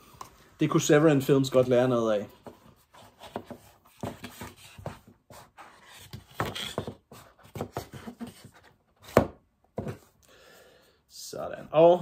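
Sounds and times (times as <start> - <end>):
plastic case and cardboard rustling: 1.6 - 10.2.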